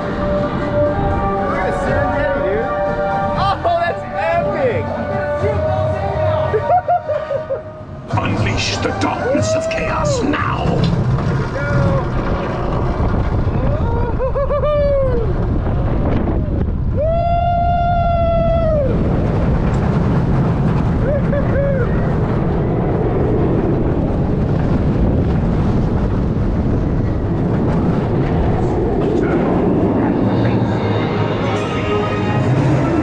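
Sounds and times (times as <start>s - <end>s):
roller coaster wheels rumbling: 0.0s - 33.0s
wind rushing over microphone: 7.8s - 33.0s
riders whooping: 11.4s - 19.5s, 20.6s - 23.1s.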